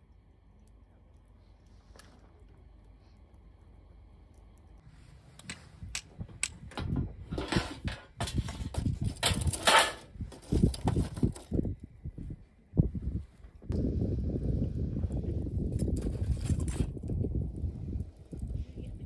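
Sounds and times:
wooden sticks and charcoal clattering: 0.7s - 11.7s, 15.5s - 18.6s.

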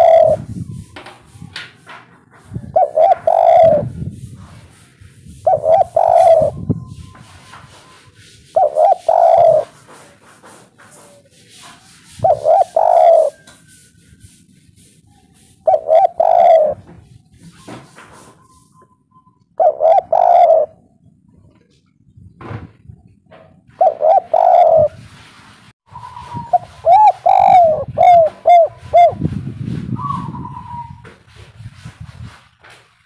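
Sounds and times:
dove cooing: 0.0s - 0.5s, 2.6s - 4.0s, 5.4s - 7.8s, 8.4s - 10.1s, 12.1s - 13.5s, 15.6s - 16.9s, 19.6s - 20.9s, 23.7s - 25.0s, 26.0s - 29.2s, 30.0s - 31.0s.

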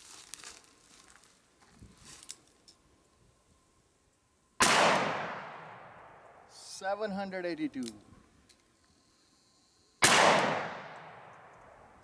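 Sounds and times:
revolver gunshot: 4.6s - 6.3s, 10.0s - 11.5s.

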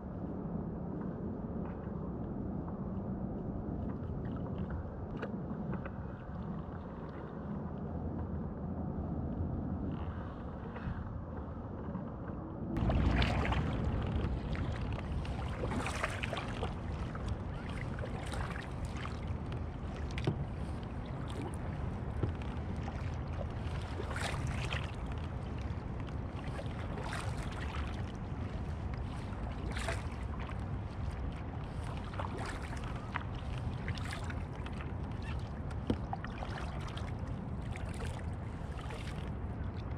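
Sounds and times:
wind rumble on microphone: 0.0s - 39.9s
paddle splashing in water: 12.8s - 39.9s.

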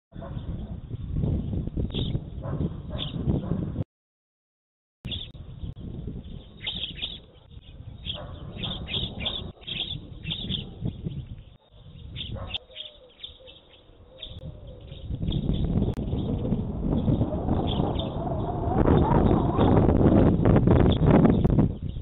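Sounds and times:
small birds chirping: 0.2s - 3.6s, 5.1s - 19.8s, 20.8s - 22.0s
low rumble: 14.5s - 21.8s.

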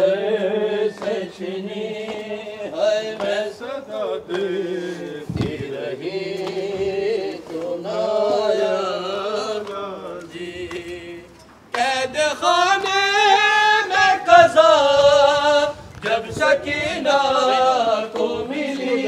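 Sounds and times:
man chanting a lament: 11.8s - 19.0s.

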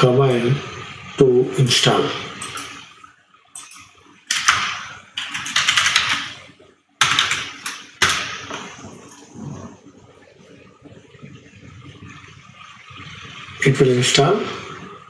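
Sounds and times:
keyboard typing: 3.6s - 9.3s.

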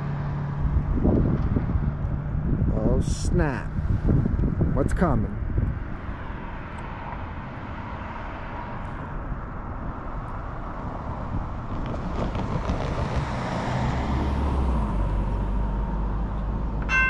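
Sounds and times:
car driving past: 10.4s - 17.0s.

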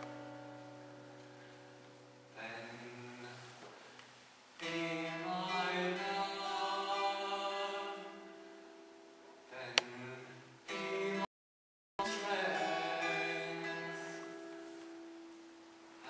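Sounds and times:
man singing slowly: 2.3s - 3.7s, 4.6s - 8.3s, 9.5s - 11.3s, 12.0s - 14.7s.

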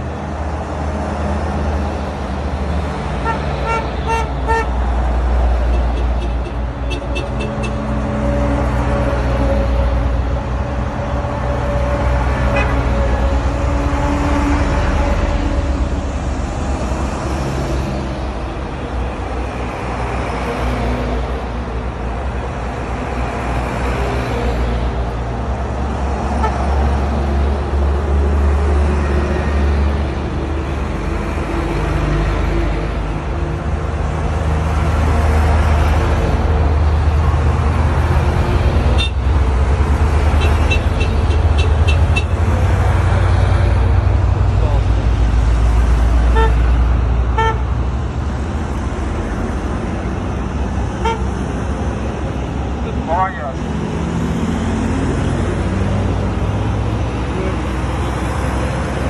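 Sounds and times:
truck engines rumbling past: 0.0s - 59.0s
horn toots: 3.2s - 4.8s, 40.4s - 42.4s, 46.3s - 46.6s, 47.3s - 47.7s, 51.0s - 51.4s.

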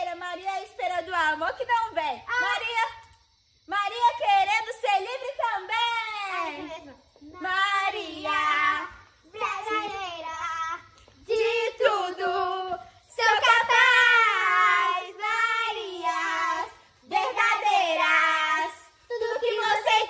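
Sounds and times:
girls singing together: 7.3s - 20.0s.

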